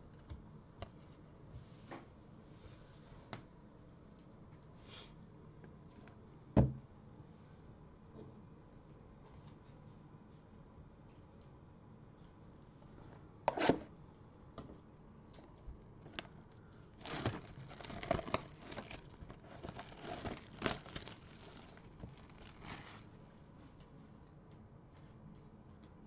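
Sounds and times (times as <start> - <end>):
cardboard boxes crinkling and rustling: 17.0 - 23.1.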